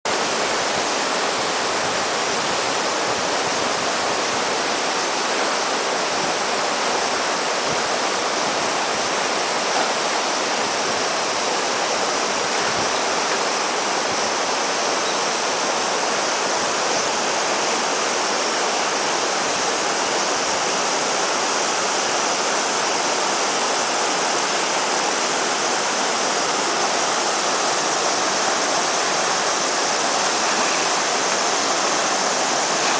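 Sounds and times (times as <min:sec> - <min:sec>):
river water rushing: 0:00.1 - 0:32.9.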